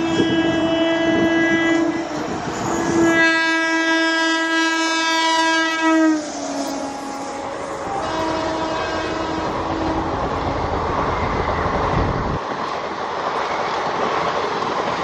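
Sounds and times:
locomotive horn blasts: 0.0 - 10.6
train rolling noise: 0.0 - 15.0.

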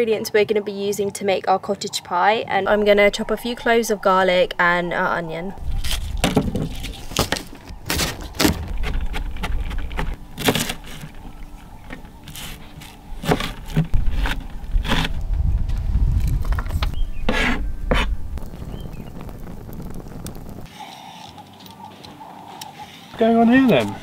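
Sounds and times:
steady low rumble: 2.5 - 10.4, 13.9 - 20.7.

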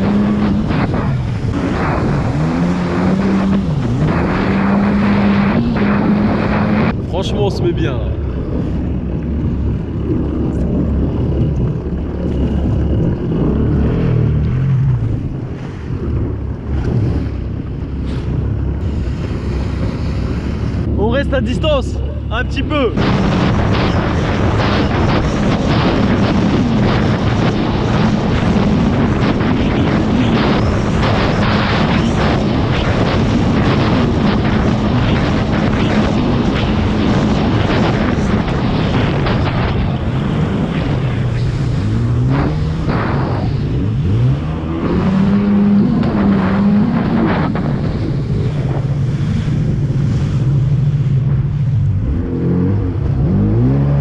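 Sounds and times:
jet ski engine running: 0.0 - 54.0
water rushing past hull: 0.0 - 54.0
wind buffeting microphone: 0.0 - 54.0.

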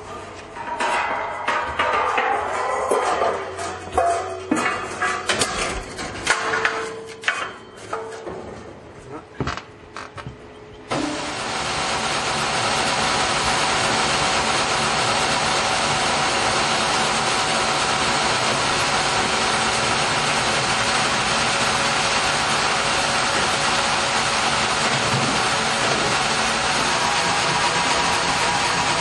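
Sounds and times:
sawmill machinery running: 10.9 - 29.0.

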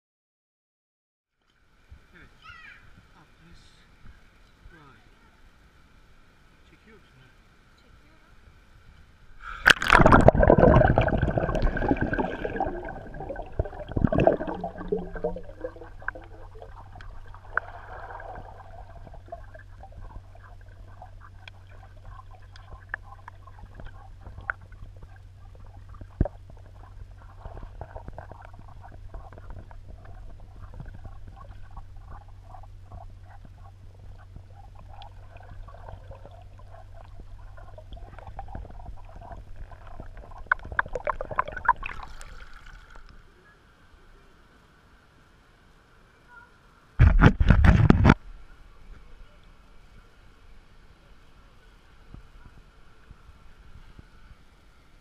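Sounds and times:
underwater low hum: 7.4 - 55.0
underwater clicks and crackles: 8.9 - 43.2, 47.0 - 48.2
splashy noise: 9.6 - 24.6.

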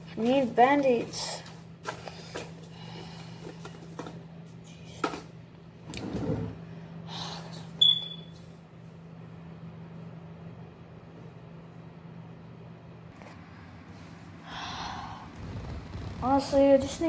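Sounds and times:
steady low hum: 0.0 - 17.0
sharp high squeak: 7.8 - 8.3.

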